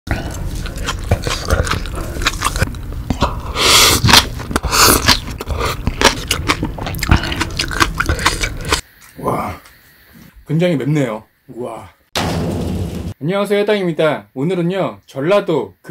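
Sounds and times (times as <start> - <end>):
wet chewing with crunches: 0.1 - 8.8
breathy sucking sounds: 1.8 - 5.9.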